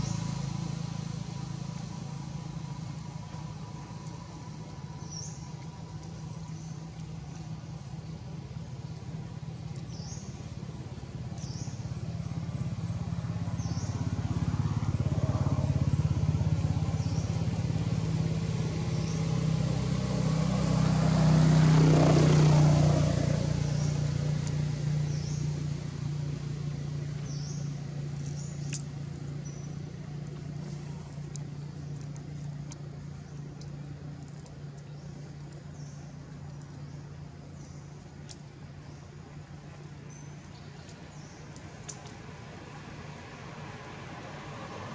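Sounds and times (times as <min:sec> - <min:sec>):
vehicle engine passing by: 0:00.0 - 0:38.1, 0:38.8 - 0:44.9.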